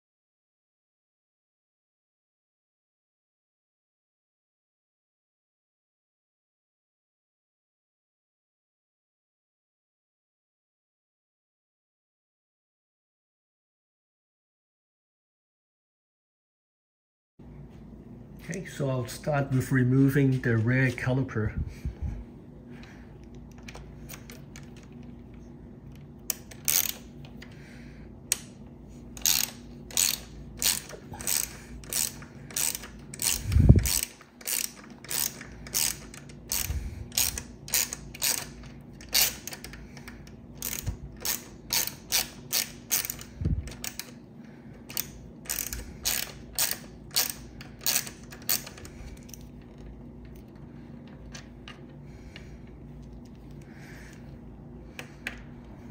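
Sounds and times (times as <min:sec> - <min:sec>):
ratcheting hex driver clicking: 0:25.9 - 0:27.6, 0:29.2 - 0:44.2, 0:44.8 - 0:53.6.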